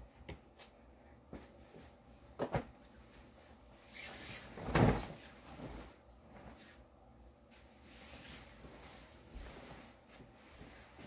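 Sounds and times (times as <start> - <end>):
bed sheet flapping: 2.4 - 6.9, 7.5 - 11.0.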